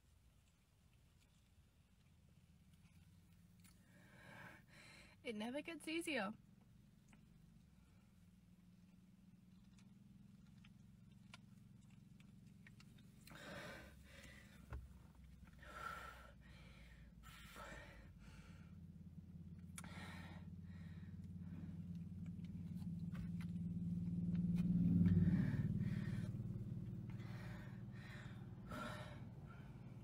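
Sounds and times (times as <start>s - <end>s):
low hum: 0.5s - 30.0s
person taking sharp breaths: 13.3s - 14.7s, 19.8s - 21.6s, 25.1s - 30.0s.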